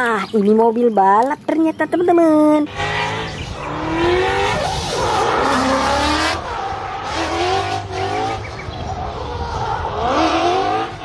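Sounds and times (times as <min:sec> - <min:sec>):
car engine revving: 0:02.7 - 0:11.0.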